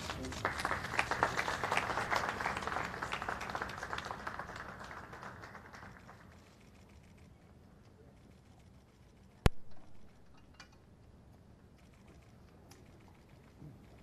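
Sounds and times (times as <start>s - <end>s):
audience applause: 0.0s - 6.3s.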